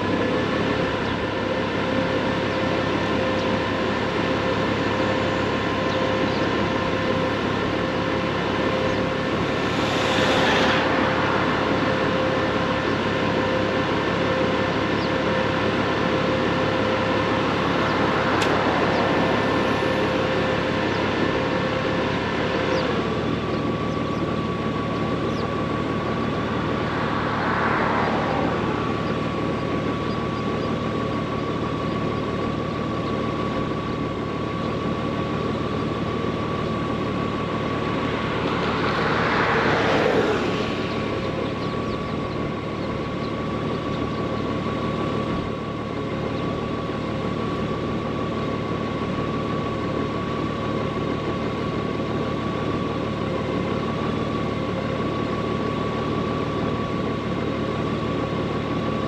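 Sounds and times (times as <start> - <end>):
motorcycle engine idling: 0.0 - 9.7, 11.1 - 27.0, 29.0 - 38.4, 40.9 - 59.0
vehicles passing by: 0.0 - 59.0.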